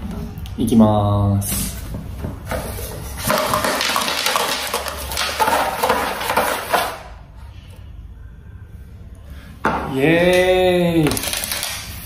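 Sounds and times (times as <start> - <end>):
dice rattling in a cup: 3.3 - 6.8, 11.1 - 12.0.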